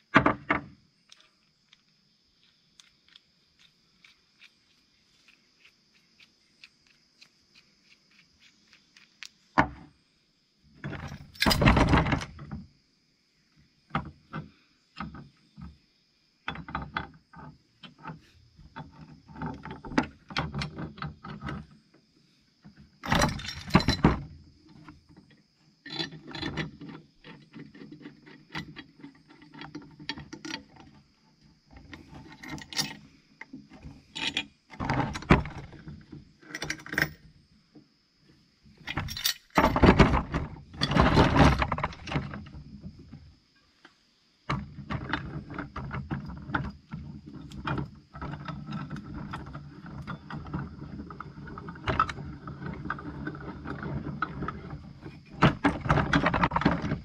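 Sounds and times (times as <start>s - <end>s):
metal vise parts clinking: 10.9s - 12.3s, 23.0s - 24.2s, 31.9s - 33.1s, 34.1s - 35.7s, 38.8s - 40.2s.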